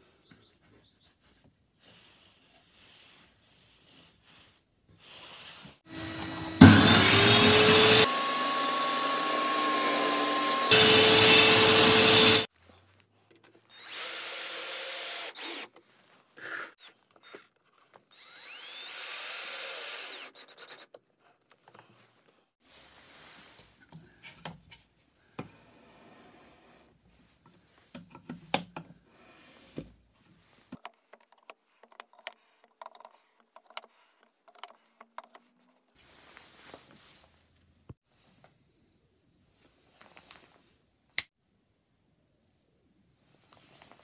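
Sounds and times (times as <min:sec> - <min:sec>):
table saw motor whining: 0:05.9 - 0:12.5, 0:18.2 - 0:20.4
cordless drill driving screws: 0:13.7 - 0:15.7, 0:18.1 - 0:20.8.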